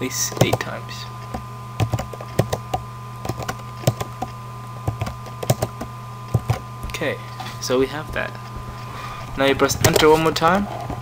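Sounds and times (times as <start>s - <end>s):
steady low hum: 0.0s - 11.0s
keyboard keys clicking: 1.3s - 7.0s.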